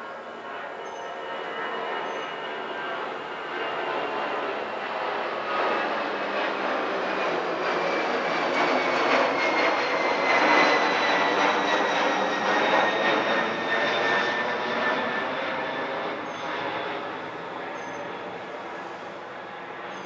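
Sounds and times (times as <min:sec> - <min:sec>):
passing engine rush with whine: 0:00.0 - 0:20.0.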